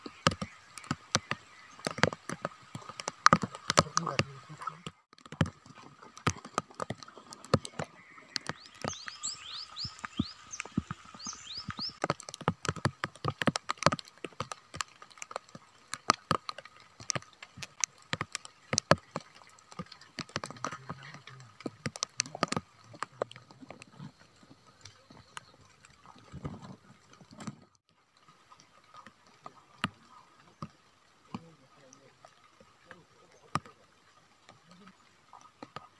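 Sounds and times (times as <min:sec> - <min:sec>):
sharp taps and clicks: 0:00.0 - 0:23.8.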